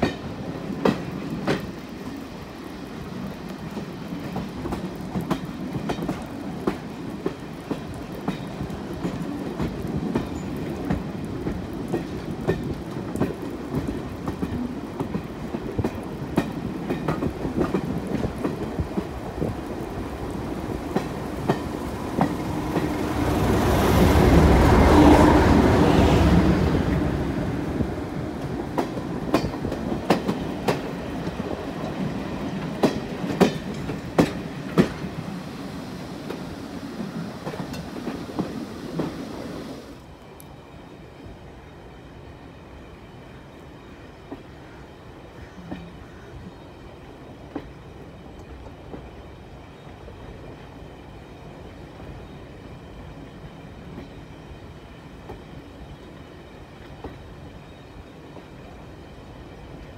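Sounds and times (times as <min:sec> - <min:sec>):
train wheels clicking over joints: 0:00.0 - 0:02.3, 0:03.0 - 0:25.4, 0:27.7 - 0:40.1
train rumble: 0:00.0 - 0:59.9.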